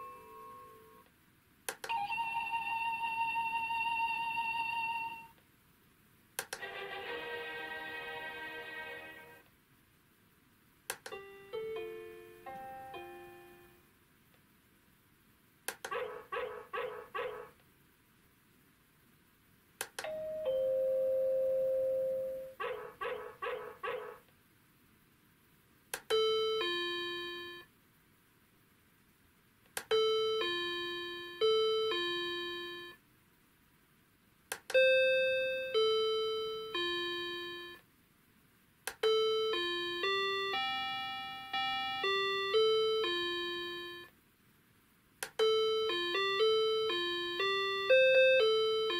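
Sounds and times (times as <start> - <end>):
electronic door chime ringtones: 0.0 - 1.0, 20.0 - 22.5, 34.8 - 37.8, 39.0 - 44.1.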